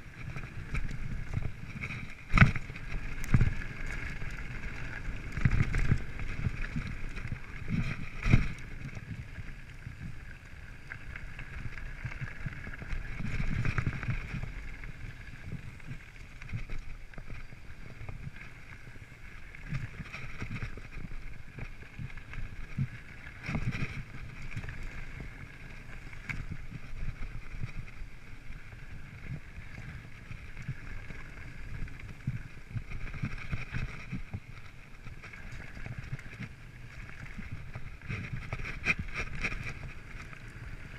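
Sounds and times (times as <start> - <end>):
bike rattling and knocking: 0.0 - 10.2, 11.4 - 14.6, 19.7 - 28.2, 30.4 - 40.9
bike tyres rumbling on dirt: 0.0 - 40.9.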